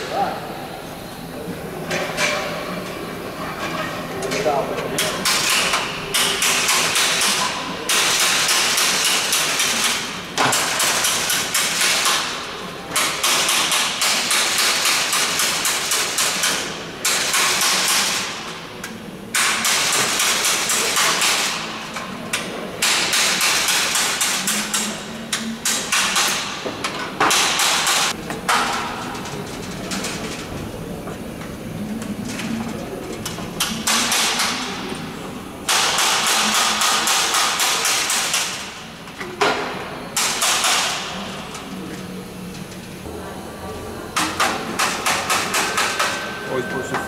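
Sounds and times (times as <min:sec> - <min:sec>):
pneumatic rivet gun hammering: 0:05.0 - 0:18.4, 0:19.4 - 0:21.6, 0:22.8 - 0:24.9, 0:25.6 - 0:28.8, 0:35.7 - 0:38.7, 0:39.4 - 0:41.2.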